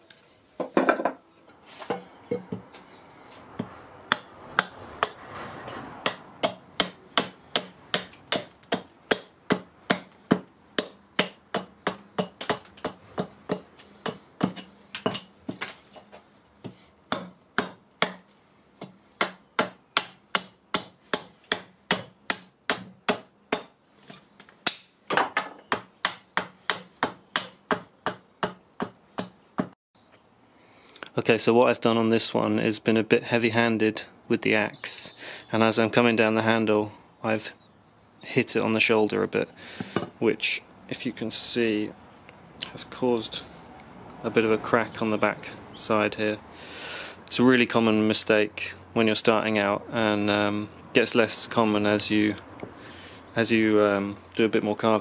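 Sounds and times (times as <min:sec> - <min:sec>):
axe chopping wood: 0:04.1 - 0:15.7, 0:16.6 - 0:29.8.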